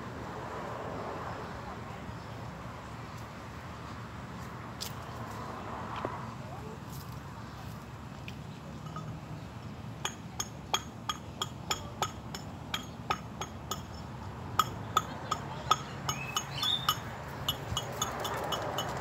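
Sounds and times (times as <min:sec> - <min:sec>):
metal hand tool tapping: 0:10.0 - 0:14.0.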